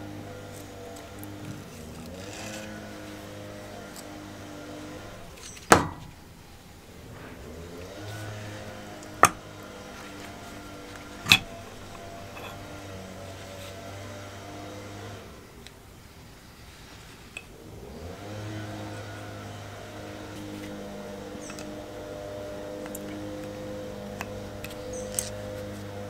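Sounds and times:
metallic knocks: 0:05.3 - 0:06.3, 0:07.2 - 0:13.0.

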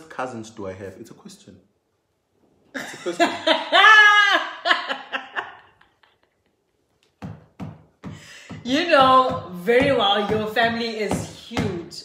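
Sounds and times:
woman laughing loudly: 0:02.8 - 0:06.4.

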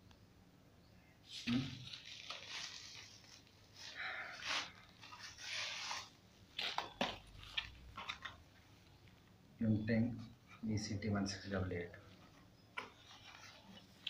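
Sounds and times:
plastic wrapping rustling: 0:01.3 - 0:09.3, 0:12.2 - 0:14.0.

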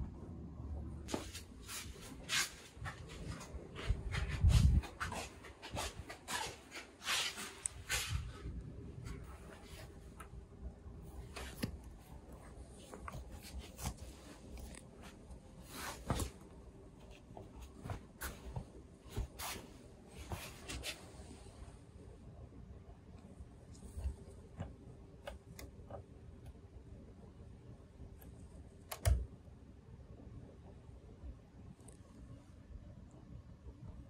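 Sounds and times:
faint steady hum: 0:00.0 - 0:34.0
soft rustling: 0:01.1 - 0:10.3, 0:11.0 - 0:21.8.

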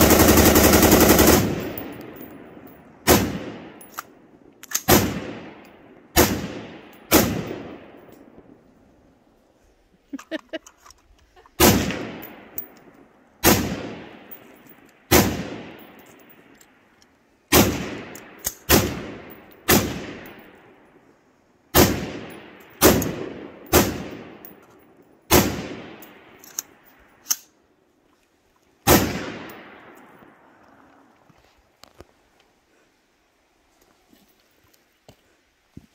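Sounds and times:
rifle shots with echo: 0:00.0 - 0:03.8, 0:04.8 - 0:08.4, 0:11.6 - 0:12.6, 0:13.4 - 0:14.4, 0:15.1 - 0:16.0, 0:17.5 - 0:20.5, 0:21.7 - 0:24.6, 0:25.3 - 0:26.4, 0:28.9 - 0:30.3.

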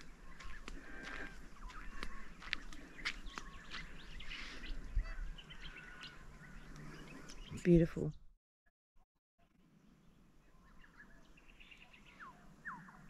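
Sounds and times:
birds chirping and whistling: 0:00.0 - 0:07.7, 0:10.5 - 0:13.0.

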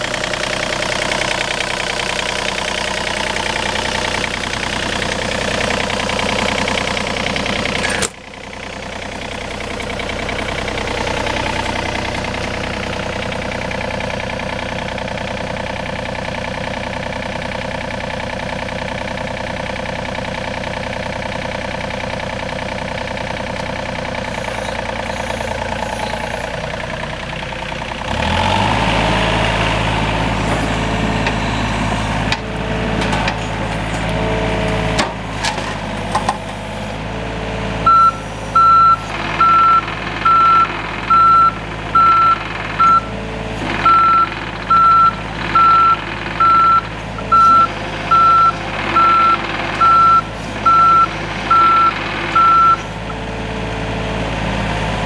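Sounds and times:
excavator diesel engine running: 0:00.0 - 0:55.0
travel alarm beeping: 0:37.9 - 0:43.1, 0:43.9 - 0:52.8.

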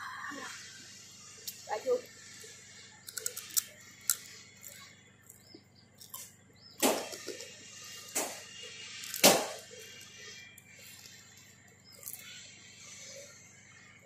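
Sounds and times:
chewing crispy pork skin: 0:03.0 - 0:12.5.

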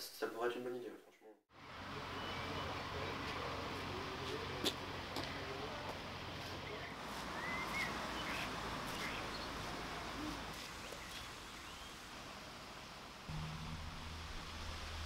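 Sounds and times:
steady background hiss: 0:01.6 - 0:15.0
birds chirping: 0:01.8 - 0:04.5, 0:06.6 - 0:12.2
low hum: 0:13.3 - 0:15.0.

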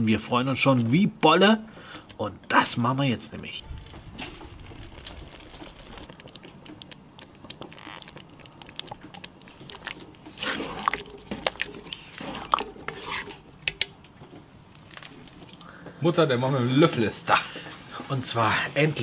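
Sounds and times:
spoon stirring thick stew: 0:03.9 - 0:13.5.

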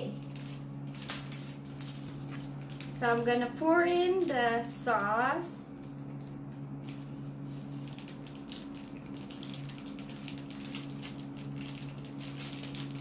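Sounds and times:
plastic sachet crinkling: 0:00.0 - 0:13.0
steady low hum: 0:00.0 - 0:13.0.

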